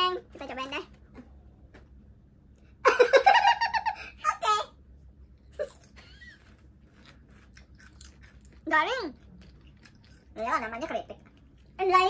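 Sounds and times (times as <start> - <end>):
woman laughing: 2.8 - 4.1.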